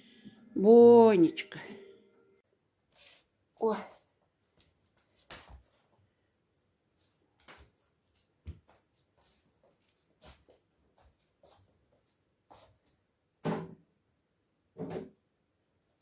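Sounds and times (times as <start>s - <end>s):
crutches and steps tapping on floor: 7.4s - 8.9s.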